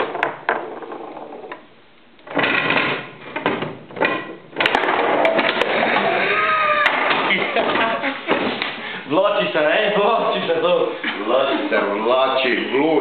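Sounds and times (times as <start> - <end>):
table football rods clattering: 0.0 - 8.8.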